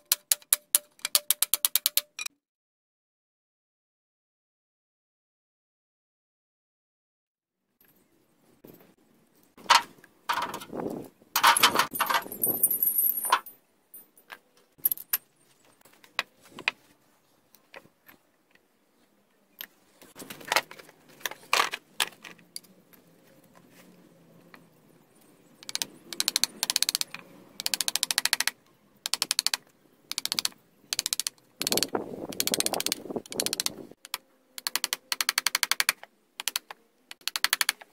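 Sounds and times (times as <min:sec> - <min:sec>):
iron spikes clinking: 0:11.4 - 0:15.2.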